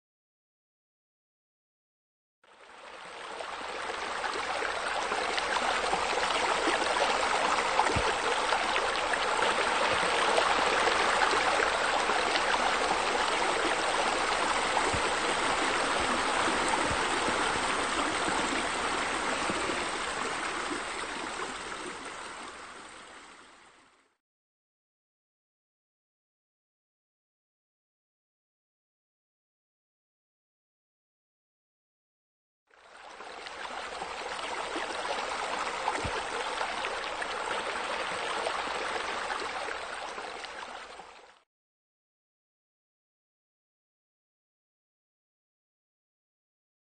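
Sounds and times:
running and splashing water: 2.7 - 23.1, 32.8 - 41.4.

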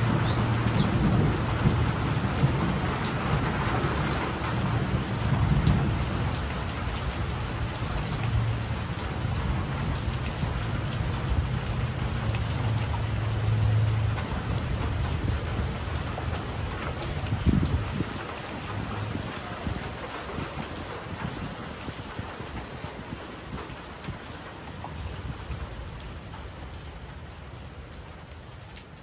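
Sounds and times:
low thunder rumble: 0.0 - 12.0
rain pattering: 0.0 - 29.0.

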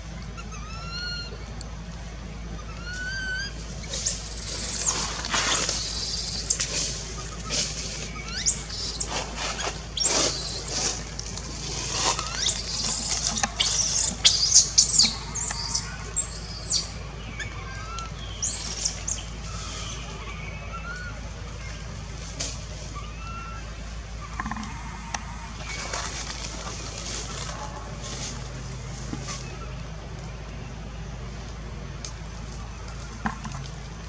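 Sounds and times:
infant monkey screaming: 2.8 - 6.7, 8.2 - 11.0, 12.0 - 19.8.

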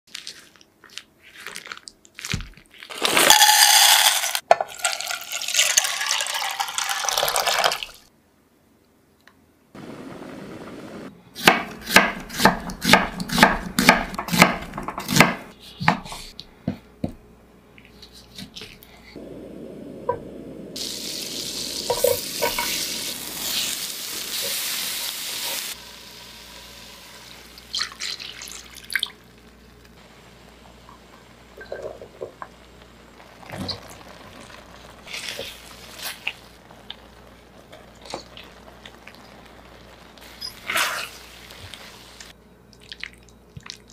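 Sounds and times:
knife chopping onion on wooden board: 11.4 - 16.1
frying sizzle in a pan: 20.8 - 42.4.

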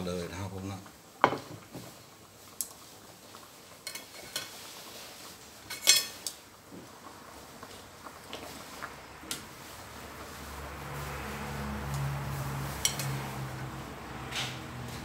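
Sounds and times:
metal utensils clinking: 3.8 - 4.5, 5.7 - 6.3, 12.7 - 13.4.

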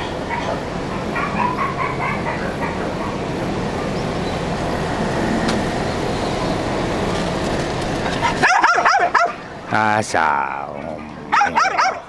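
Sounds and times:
steady low rumbling: 0.0 - 8.4.

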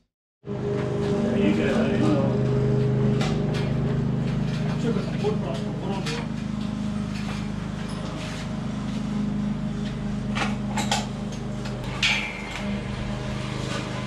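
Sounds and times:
steady low hum: 0.5 - 14.0
sharp metal knocks: 11.8 - 13.2
metal frame clanking: 11.8 - 14.0.

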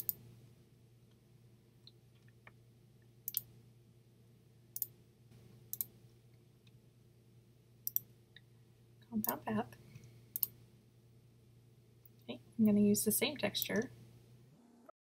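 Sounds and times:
computer mouse clicks: 0.0 - 0.2, 3.3 - 3.5, 5.7 - 5.9, 7.8 - 8.1, 10.3 - 10.6
faint low hum: 0.0 - 14.9.

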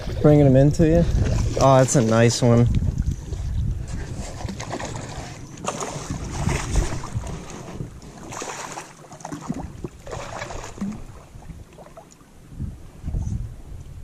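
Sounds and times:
wind rumbling on microphone: 0.0 - 8.8, 9.4 - 14.0
fish splashing at water surface: 4.2 - 12.1.

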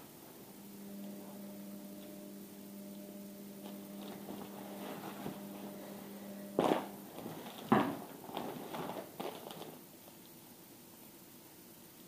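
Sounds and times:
low electrical hum: 0.0 - 12.0
fabric rustling and clicks: 3.6 - 9.8.

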